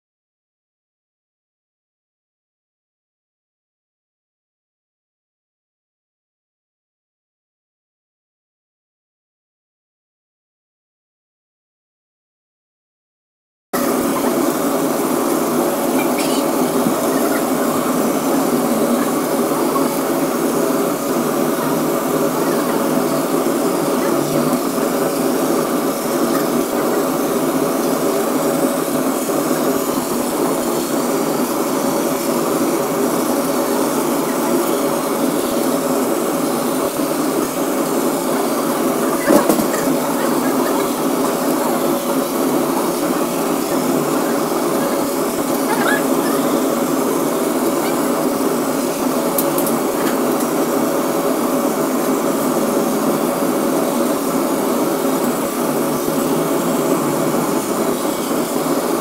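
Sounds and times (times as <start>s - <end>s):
laser cutter machine drone: 13.8s - 59.0s.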